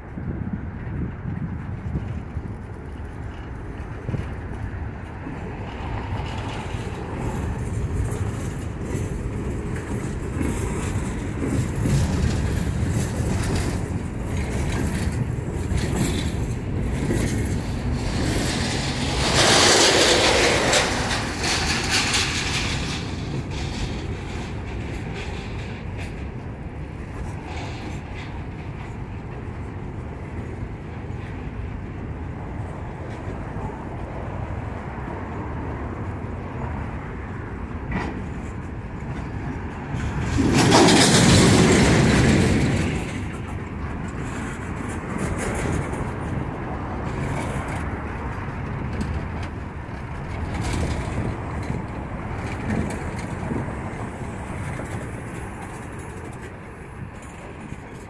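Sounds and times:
freight car wheels clacking: 0.9 - 30.0, 37.9 - 58.0
loud rushing noise: 17.4 - 24.8.

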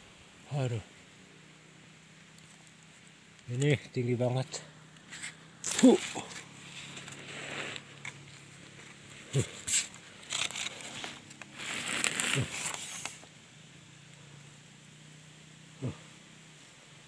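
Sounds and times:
scraping against tree bark: 4.9 - 13.3
person grunting with effort: 15.8 - 16.1.

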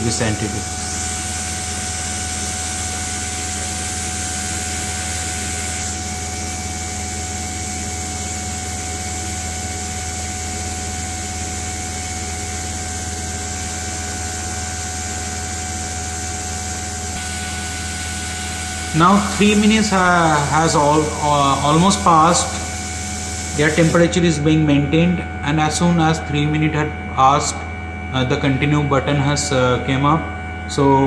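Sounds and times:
air hissing: 0.0 - 24.2
machine humming: 0.0 - 31.0.

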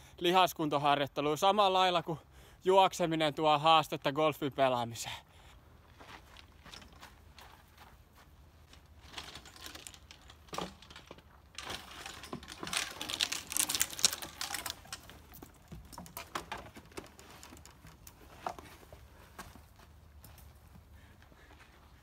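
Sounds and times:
golf clubs rattling in a bag: 8.7 - 19.1.

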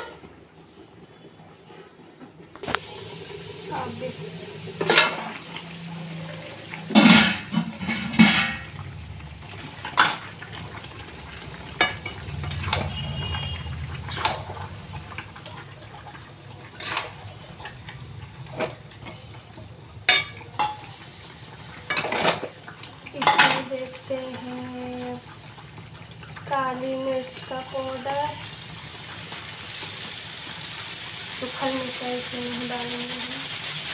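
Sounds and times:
steel lid clanking: 6.9 - 8.7.

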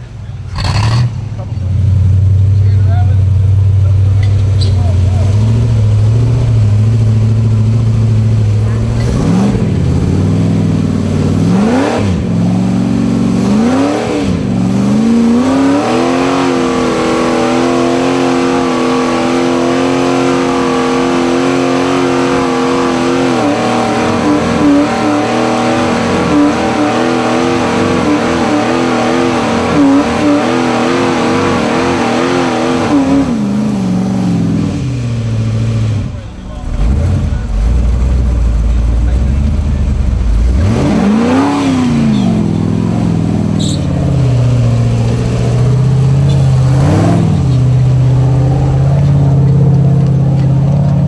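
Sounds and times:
engine revving: 0.0 - 51.0.

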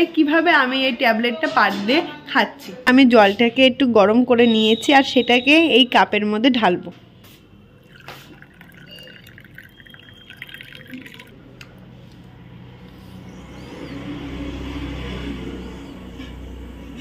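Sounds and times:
water poured into cup: 7.7 - 11.9.

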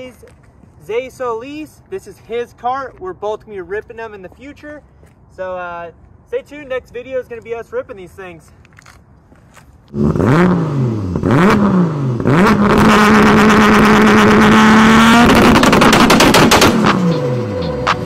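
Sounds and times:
engine revving with crackling: 9.9 - 18.0.

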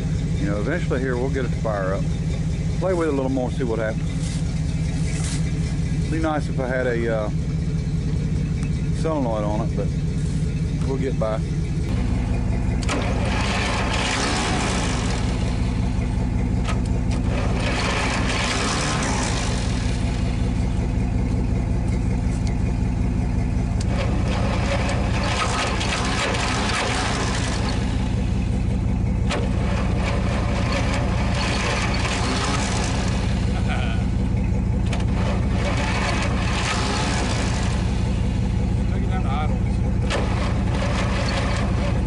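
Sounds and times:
engine idling: 0.0 - 42.0
rustling: 4.0 - 5.8.

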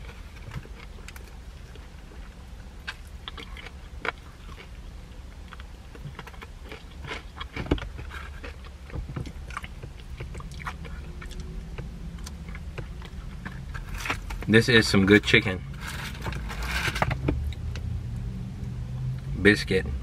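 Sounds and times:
crunchy chewing of fried chicken: 0.0 - 14.6.

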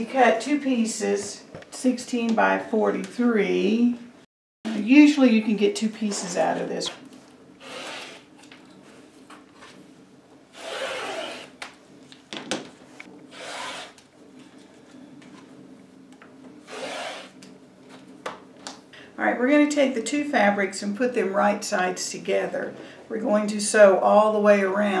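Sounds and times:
rotary cutter rolling through fabric: 7.6 - 8.3, 10.6 - 11.6, 13.3 - 14.0, 16.7 - 17.4.

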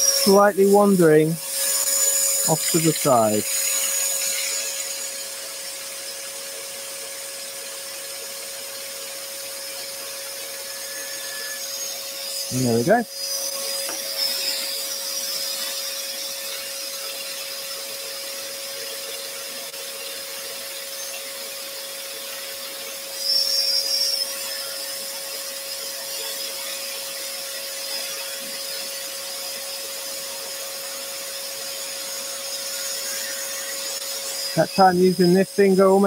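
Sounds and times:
dust extractor humming: 0.0 - 3.7, 34.2 - 36.0
scroll saw cutting wood: 0.0 - 36.0.

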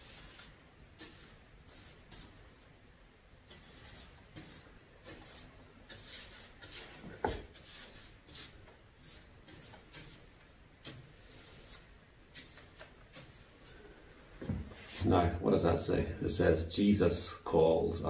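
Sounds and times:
paintbrush swishing over paper: 0.0 - 2.4, 3.5 - 13.8, 14.4 - 15.2.

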